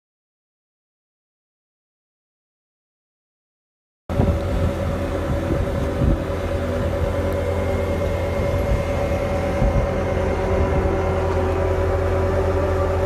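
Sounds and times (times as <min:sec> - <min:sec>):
diesel engine running: 0:04.1 - 0:13.0.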